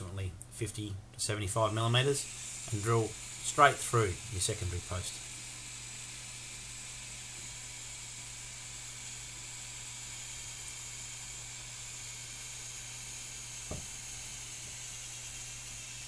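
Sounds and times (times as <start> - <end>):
background hiss: 0.0 - 7.5
short thump: 13.7 - 13.9.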